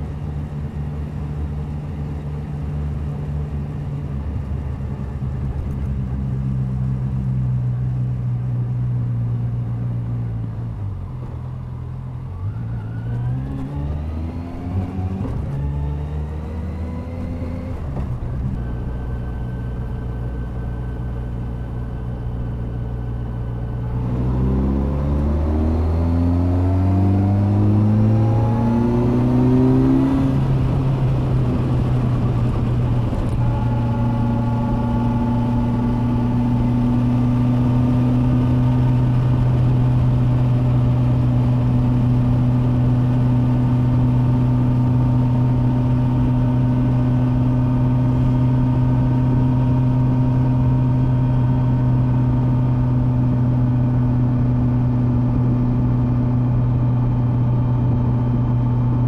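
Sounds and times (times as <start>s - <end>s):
motorcycle engine revving: 23.8s - 59.0s.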